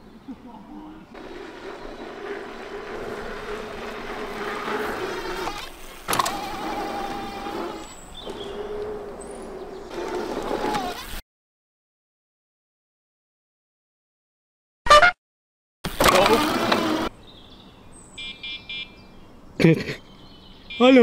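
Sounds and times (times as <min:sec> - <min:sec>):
tyres rumbling on dirt: 0:01.1 - 0:11.2, 0:15.9 - 0:17.1
electric bike motor whine: 0:01.2 - 0:11.2, 0:15.9 - 0:17.1.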